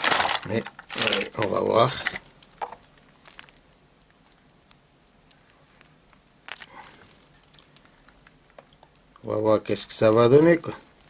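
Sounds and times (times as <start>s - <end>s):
plastic packaging crinkling: 0.0s - 2.8s.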